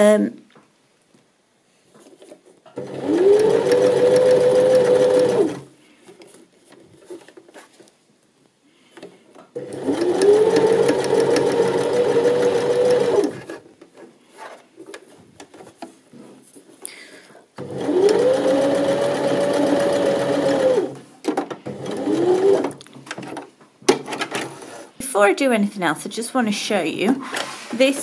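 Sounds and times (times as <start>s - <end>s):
sewing machine stitching: 2.8s - 5.7s, 9.6s - 13.6s, 17.6s - 21.0s, 21.6s - 22.8s.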